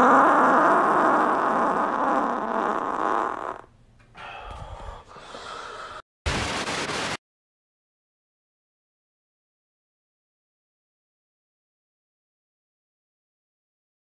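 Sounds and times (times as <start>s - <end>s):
loud fart: 0.0s - 3.7s.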